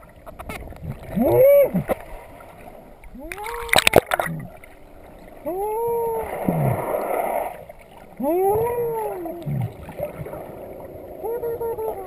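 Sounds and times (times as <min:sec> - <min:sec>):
bubbling water rush: 0:00.0 - 0:12.0
person whooping through snorkel: 0:01.1 - 0:01.9, 0:03.2 - 0:04.1, 0:05.4 - 0:07.0, 0:08.2 - 0:09.6.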